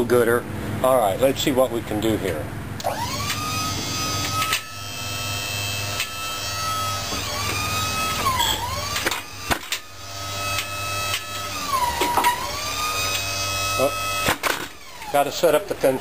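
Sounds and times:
hydraulic pump whining: 2.3 - 16.0.

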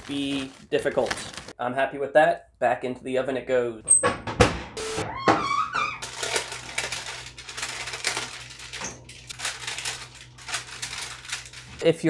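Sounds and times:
parchment paper crinkling: 0.0 - 1.6, 6.0 - 11.9.

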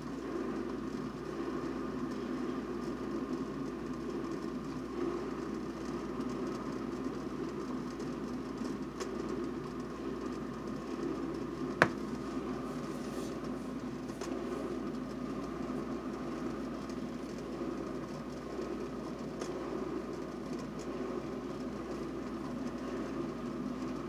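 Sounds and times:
kettle heating water rumble: 0.0 - 24.0.

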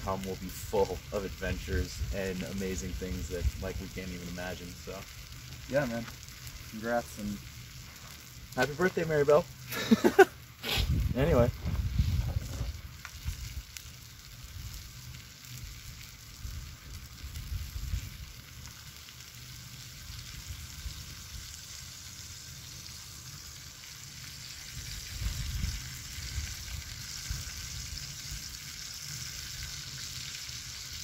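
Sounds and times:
steak sizzling in a skillet: 0.0 - 31.0.

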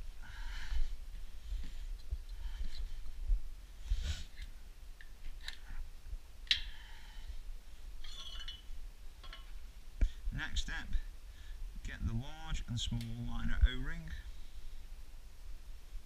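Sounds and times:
light metal clicks and scrapes: 8.0 - 9.6.

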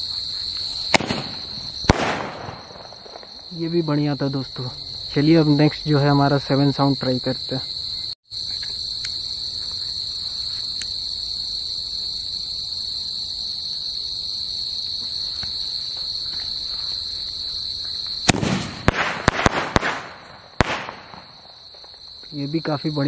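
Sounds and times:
crickets chirring: 0.0 - 23.0
firework crack: 0.7 - 3.6, 18.2 - 22.0.

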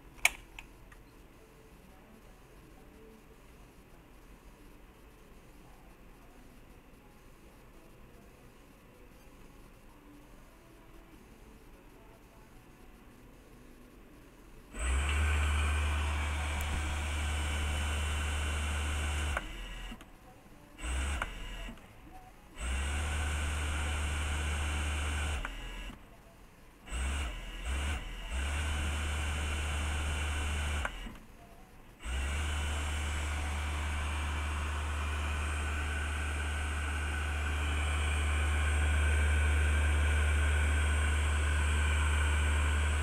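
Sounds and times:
sewing machine motor humming: 14.7 - 20.0, 20.8 - 21.8, 22.6 - 26.0, 26.9 - 31.2, 32.0 - 43.0.

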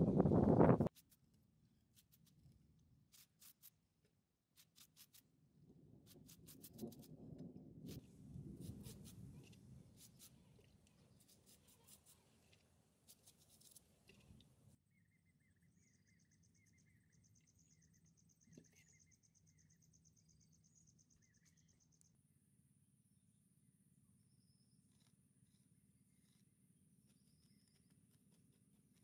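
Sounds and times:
brush scratching on concrete: 0.8 - 1.3, 1.9 - 2.4, 3.1 - 3.8, 4.6 - 5.2, 6.1 - 7.1, 7.9 - 14.2, 24.9 - 26.5
bird chirps: 14.8 - 22.2, 27.0 - 28.1.

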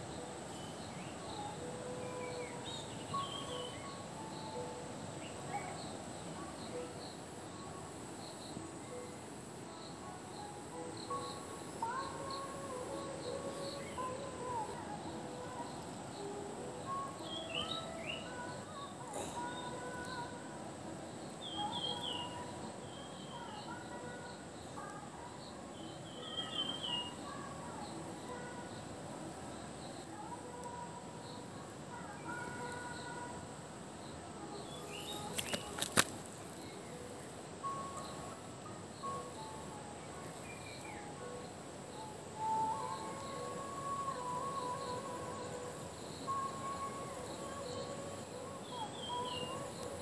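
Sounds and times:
background hiss: 0.0 - 50.0
insect hum: 0.0 - 50.0
whistled bird calls: 16.9 - 18.6, 42.3 - 50.0
birds chirping: 34.1 - 38.4.

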